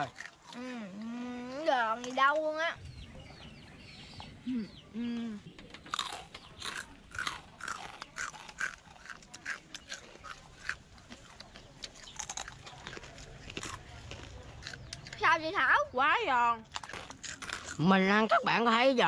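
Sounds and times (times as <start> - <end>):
crunchy food being chewed: 0.0 - 2.6, 5.7 - 15.6, 16.6 - 18.5.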